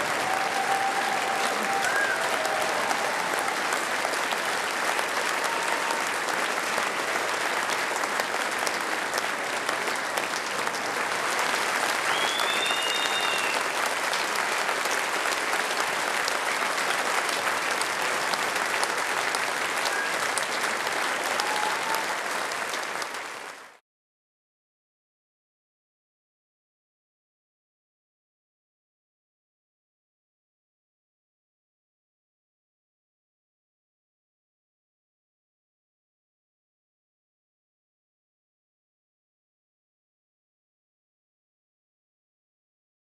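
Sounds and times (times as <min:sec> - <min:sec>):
audience applauding: 0:00.0 - 0:23.8.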